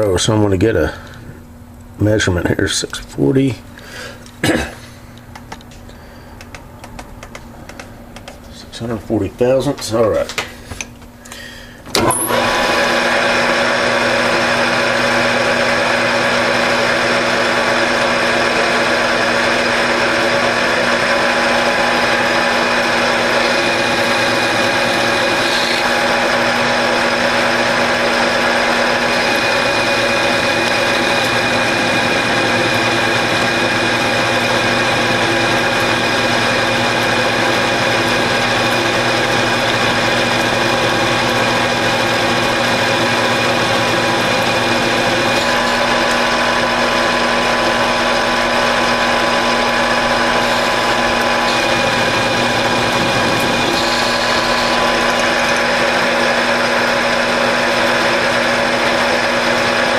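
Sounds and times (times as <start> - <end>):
metal lathe running with whine: 11.9 - 59.9
turning tool cutting metal: 11.9 - 59.9.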